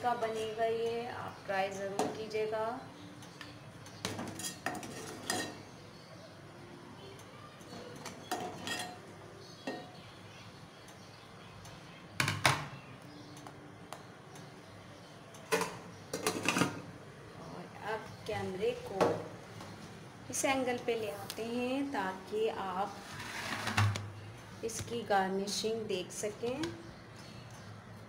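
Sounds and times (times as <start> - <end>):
metal ladle clinking on pot: 4.0 - 5.7, 8.0 - 10.0.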